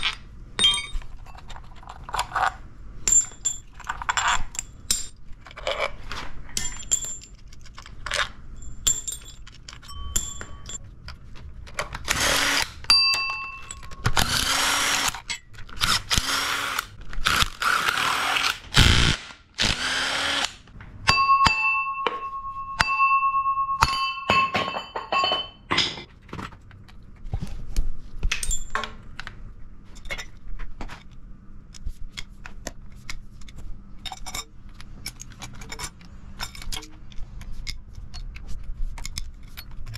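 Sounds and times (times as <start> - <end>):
metallic clinks of bolts and tools: 0.0 - 1.8, 3.0 - 5.2, 6.6 - 7.9, 8.6 - 10.9, 12.9 - 14.2, 21.1 - 26.1, 28.3 - 29.0, 34.0 - 37.0
cordless drill running: 12.1 - 12.7, 14.2 - 15.1, 16.2 - 16.9, 17.6 - 20.5.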